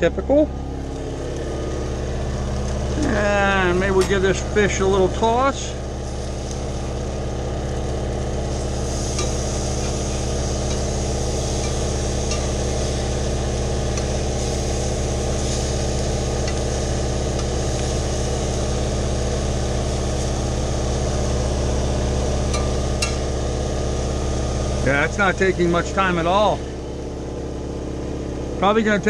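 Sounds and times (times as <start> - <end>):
generator engine running: 0.0 - 29.0
fish sizzling in a frying pan: 5.9 - 24.0.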